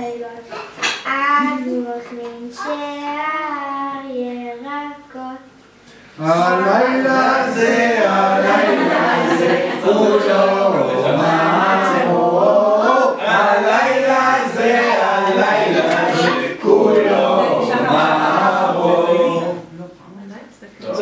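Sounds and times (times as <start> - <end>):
people singing together unaccompanied: 6.2 - 19.7.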